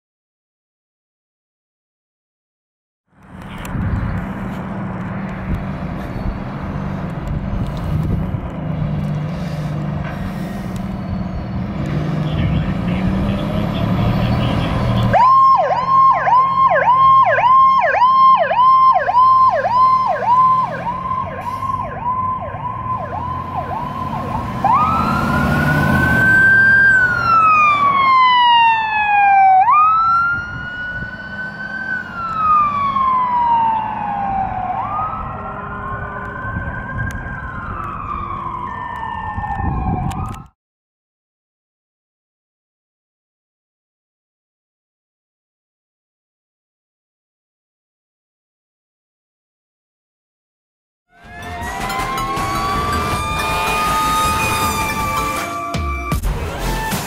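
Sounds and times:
diesel engine running: 3.4s - 15.9s, 51.2s - 57.0s
higher siren tone sweeping down: 11.2s - 40.5s, 51.1s - 57.0s
electronic siren yelping and wailing: 12.3s - 40.5s, 51.1s - 57.0s.

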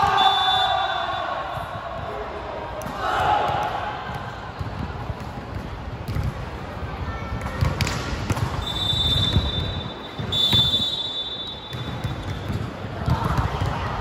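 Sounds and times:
referee whistle blasts: 0.0s - 1.4s, 8.6s - 12.3s
players and spectators voices: 0.0s - 14.0s.

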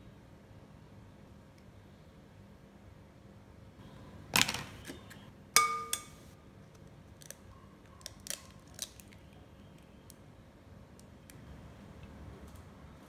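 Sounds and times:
glass ringing: 5.6s - 6.2s.

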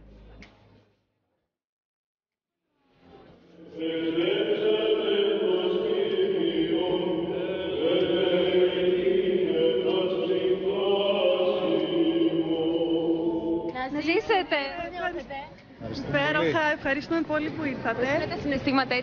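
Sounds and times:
slow chant singing: 3.5s - 14.4s.

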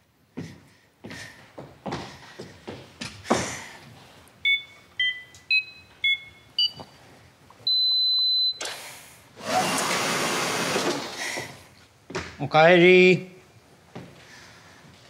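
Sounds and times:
keypad beeps: 4.4s - 6.9s, 7.7s - 8.7s.

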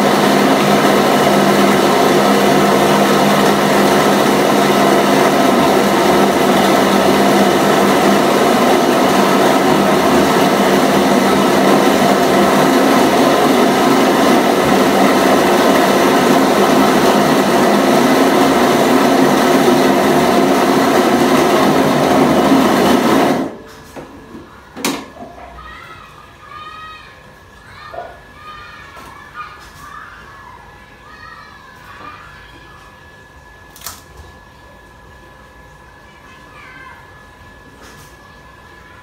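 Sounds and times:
dough-beating machine motor drone: 0.0s - 24.5s.

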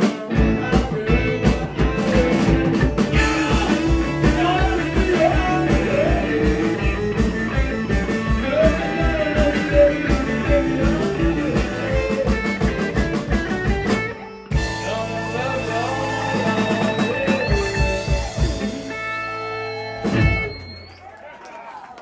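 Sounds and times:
man singing: 0.0s - 13.8s, 14.5s - 19.2s
drum kit beat: 0.0s - 20.7s
electric guitar: 0.0s - 20.8s.

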